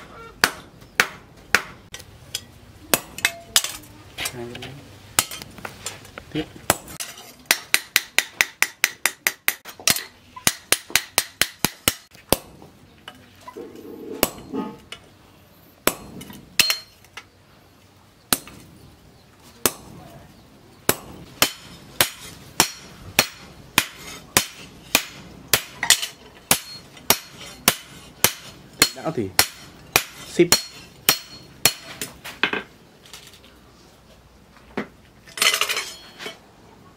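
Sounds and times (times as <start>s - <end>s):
hammer striking chisel on metal: 0.0s - 3.8s, 5.2s - 5.5s, 6.7s - 12.5s, 14.2s - 14.6s, 15.8s - 17.0s, 20.9s - 32.2s.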